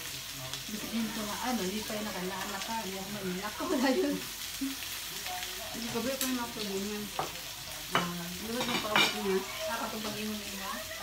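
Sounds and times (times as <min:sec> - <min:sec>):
food sizzling in frying pan: 0:00.0 - 0:11.0.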